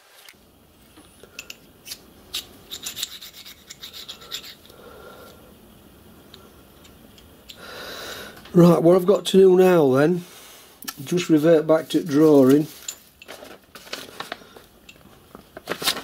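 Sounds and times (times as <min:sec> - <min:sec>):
small metal parts clicking and scraping: 0:01.4 - 0:04.7.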